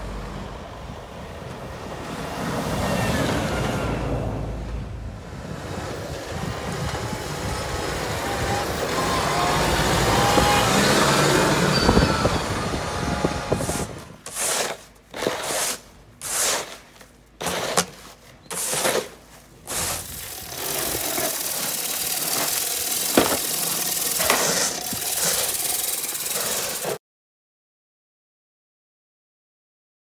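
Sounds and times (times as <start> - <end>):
tractor engine running: 4.1 - 14.0, 19.6 - 27.0
snow shovels scraping brick paving: 13.4 - 27.0
knocks: 23.2 - 23.5.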